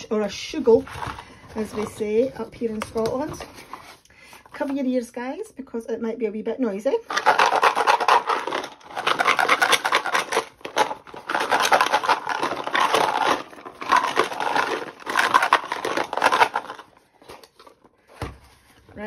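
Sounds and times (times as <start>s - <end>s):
key tags rattling in cardboard box: 7.1s - 16.9s.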